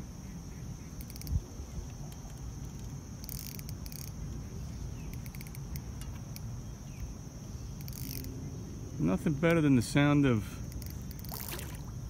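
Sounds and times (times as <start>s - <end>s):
fishing reel drag clicking: 1.0s - 1.4s, 2.1s - 4.2s, 5.1s - 6.4s, 7.8s - 8.3s, 10.6s - 11.7s.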